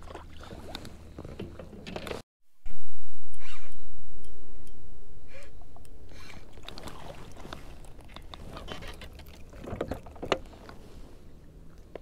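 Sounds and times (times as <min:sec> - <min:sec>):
fish splashing: 0:06.5 - 0:10.8.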